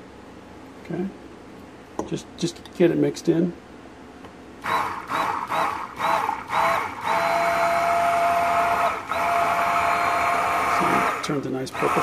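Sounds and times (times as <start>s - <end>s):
stick blender motor whining: 4.6s - 12.0s.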